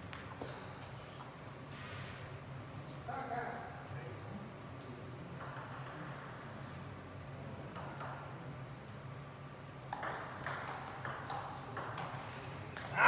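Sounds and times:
table tennis ball hits and bounces: 0:05.4 - 0:06.4, 0:07.7 - 0:08.3, 0:09.9 - 0:13.0.

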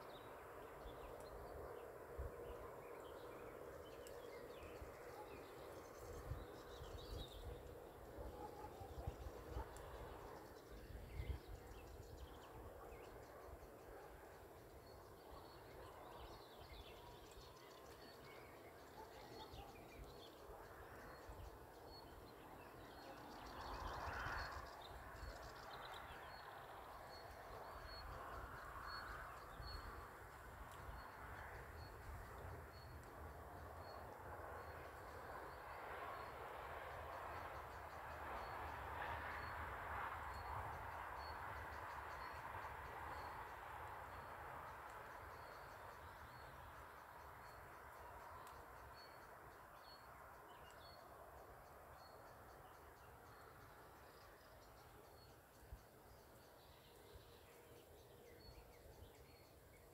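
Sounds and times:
distant birds singing: 0:00.0 - 0:59.9
wind rumble on microphone: 0:05.7 - 0:13.3.

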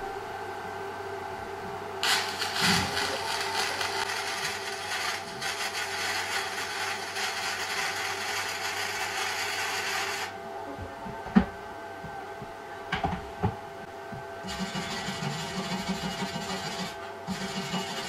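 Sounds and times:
steady hum: 0:00.0 - 0:18.0
welding arc crackling and hissing: 0:02.0 - 0:10.3.

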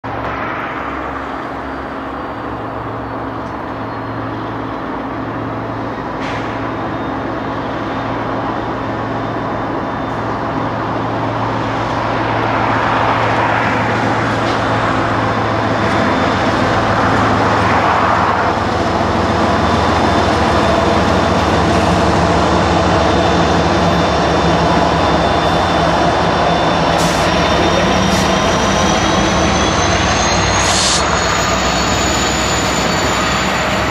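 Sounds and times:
diesel locomotive running: 0:00.0 - 0:33.9
high whine rising in pitch: 0:00.1 - 0:06.0, 0:07.1 - 0:33.9.

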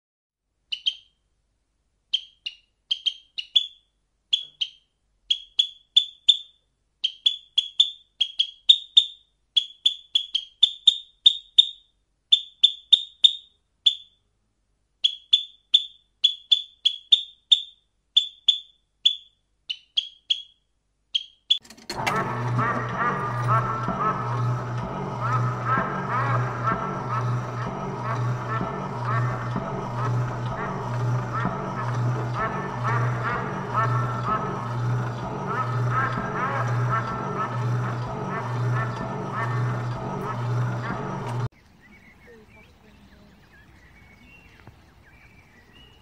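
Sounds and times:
sparrows chirping: 0:41.5 - 0:46.0.

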